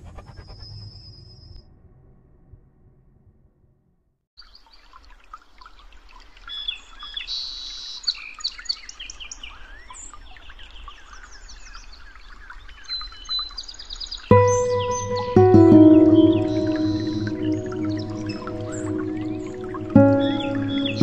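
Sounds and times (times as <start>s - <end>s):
wild birds calling: 14.4s - 21.0s.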